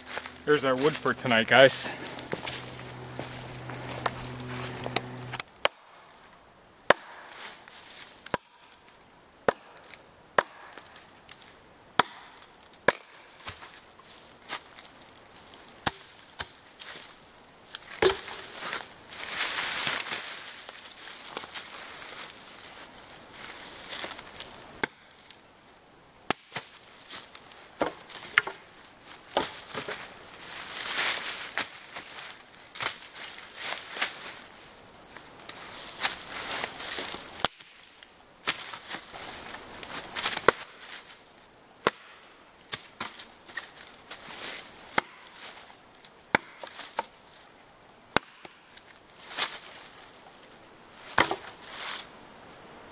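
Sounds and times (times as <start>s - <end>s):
high rustling hiss: 0.0s - 6.6s, 7.3s - 52.9s
blade chopping into wood: 6.9s - 7.3s, 8.3s - 8.7s, 9.5s - 9.8s, 10.4s - 10.8s, 12.0s - 13.6s, 15.8s - 16.6s, 18.0s - 18.6s, 40.2s - 40.7s, 41.8s - 43.1s, 44.9s - 45.4s, 46.3s - 47.1s, 48.1s - 48.6s, 51.2s - 51.5s.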